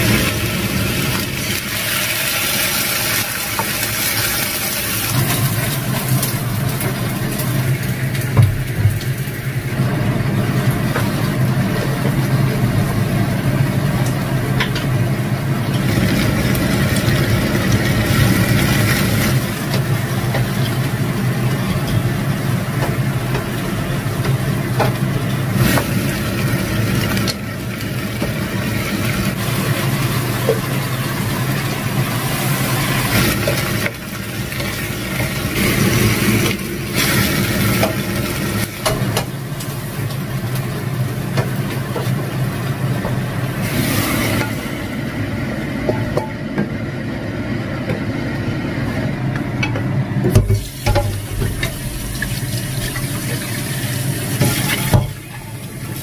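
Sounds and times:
vegetables sizzling in a wok: 0.0s - 56.0s
wok clanking in a steel sink: 32.7s - 42.4s, 45.8s - 46.7s, 49.6s - 56.0s.

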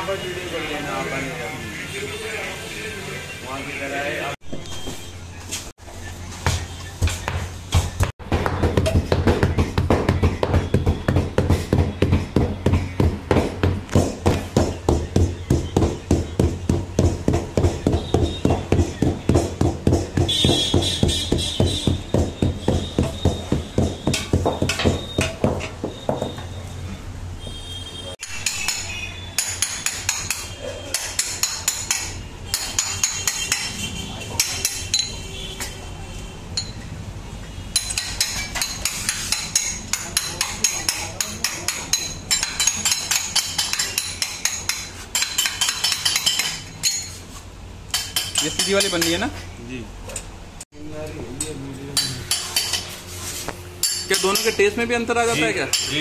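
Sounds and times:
mallet pounding on wooden board: 6.4s - 26.4s.

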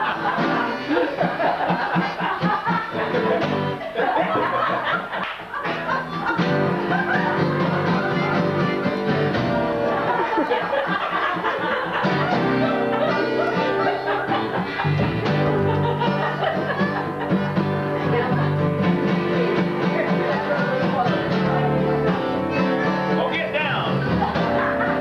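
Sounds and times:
double bass plucked: 5.9s - 10.2s, 16.8s - 23.2s.

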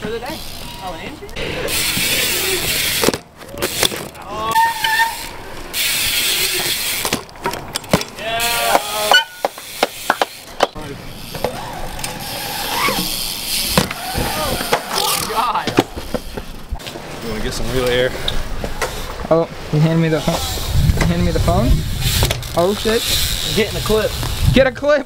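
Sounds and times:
bikes clicking and knocking on ramps: 0.0s - 25.0s
riders shouting: 0.3s - 3.0s, 4.2s - 6.8s, 8.2s - 9.5s, 10.9s - 16.1s
bike tyres hissing on concrete: 0.3s - 7.3s, 8.2s - 24.6s.

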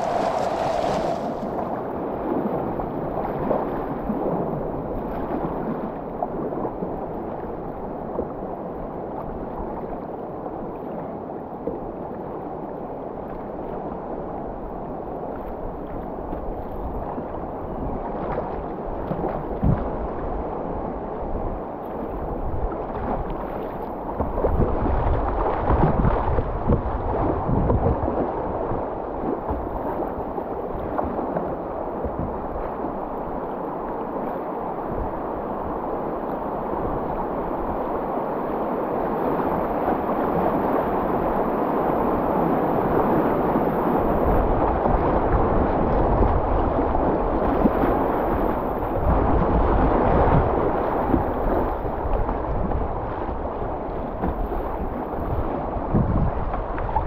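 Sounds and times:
river water rushing: 0.0s - 2.0s
wind buffeting microphone: 0.0s - 4.6s, 24.1s - 31.2s, 40.4s - 57.0s.

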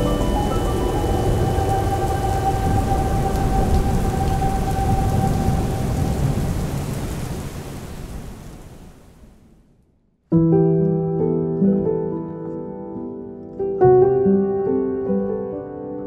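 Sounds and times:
held musical tone: 0.0s - 6.1s
heavy rain: 0.0s - 9.7s
thunder rumbling: 0.0s - 9.7s.

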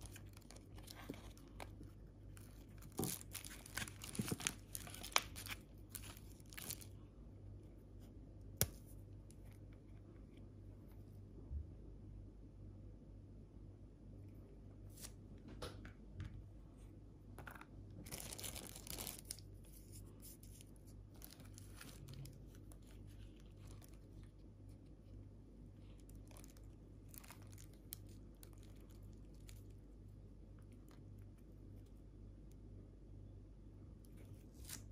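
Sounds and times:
cellophane wrapper crinkling: 0.0s - 7.0s, 18.0s - 24.8s, 25.9s - 29.8s
steady low hum: 0.0s - 34.9s.

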